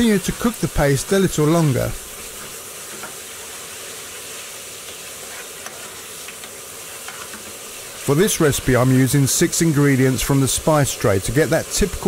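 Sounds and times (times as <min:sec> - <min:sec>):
paste sizzling in oil: 0:00.0 - 0:12.0
spoon stirring and scraping pan: 0:02.1 - 0:08.1.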